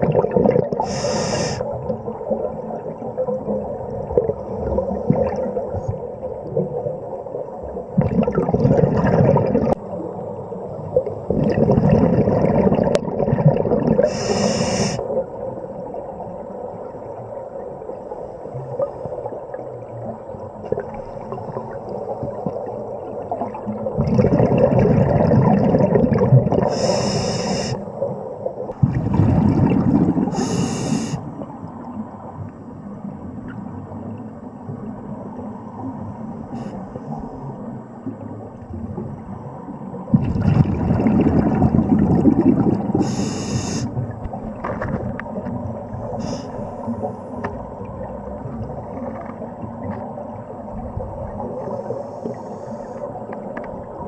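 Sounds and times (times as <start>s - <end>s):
exhaled bubbles gushing: 0.0s - 17.8s, 18.6s - 31.6s, 40.1s - 46.4s, 47.6s - 52.0s
steady underwater noise: 0.0s - 54.0s
diver breathing through regulator: 0.8s - 1.7s, 14.0s - 15.1s, 26.6s - 27.8s, 30.3s - 31.3s, 43.0s - 44.0s, 46.2s - 47.3s
short high hiss: 0.9s - 1.6s, 14.1s - 15.0s, 26.8s - 27.8s, 30.4s - 31.2s, 43.0s - 43.9s.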